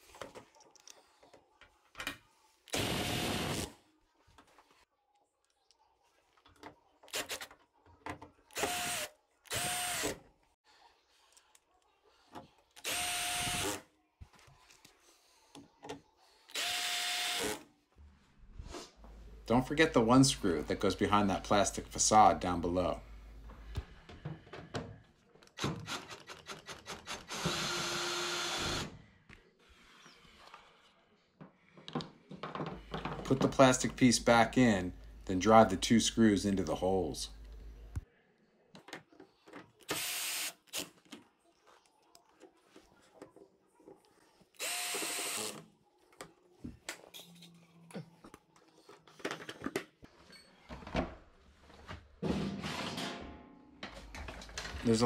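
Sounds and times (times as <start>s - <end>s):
cordless drill whirring: 27.3s - 28.9s, 39.9s - 40.6s, 44.6s - 45.6s
cordless drill driving screw: 39.9s - 40.8s, 44.6s - 45.6s.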